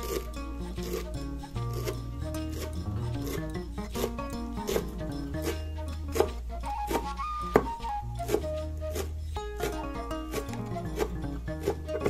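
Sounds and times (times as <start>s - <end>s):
plucked-string background music: 0.0s - 12.0s
knife chopping on wooden board: 4.0s - 12.0s.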